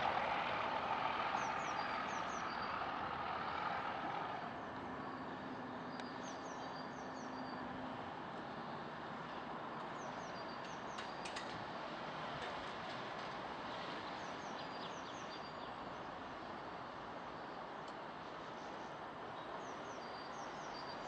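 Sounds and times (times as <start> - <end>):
diesel train rumbling: 0.0 - 19.8.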